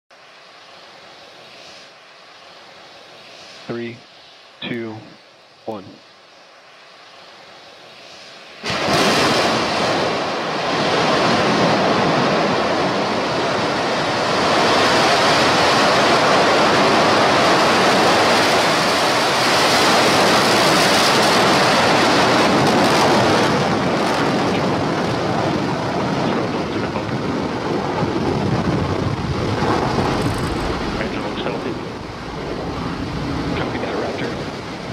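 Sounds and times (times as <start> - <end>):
rocket engine roar: 0.1 - 34.9.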